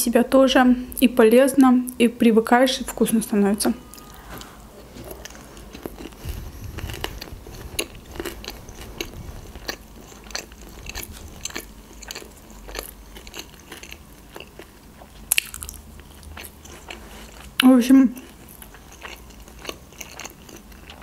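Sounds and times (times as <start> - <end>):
crunchy chewing: 3.9 - 17.6, 18.2 - 21.0.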